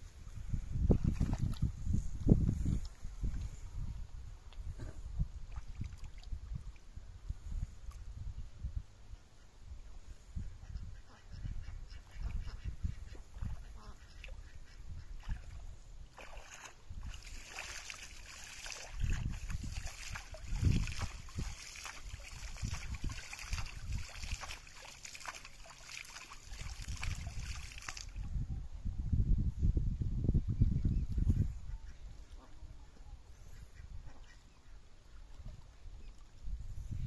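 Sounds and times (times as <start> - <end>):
hand splashing pond water: 5.5 - 6.8, 15.2 - 28.2.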